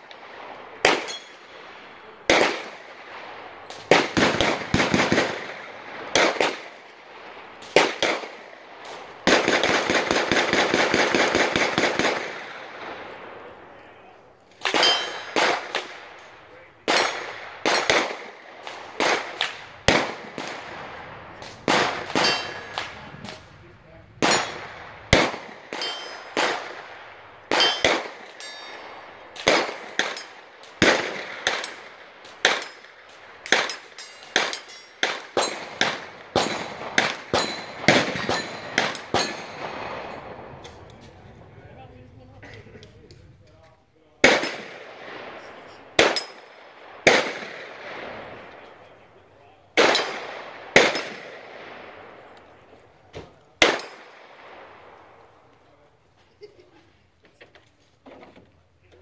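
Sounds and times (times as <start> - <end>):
gunshots: 0.0 - 13.7, 14.5 - 41.2, 44.2 - 52.4, 53.1 - 55.2
very rapid gunfire burst: 3.9 - 5.4, 9.3 - 12.3.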